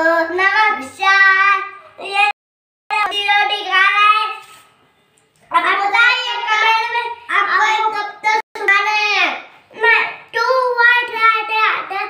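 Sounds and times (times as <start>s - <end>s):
child singing: 0.0s - 4.4s.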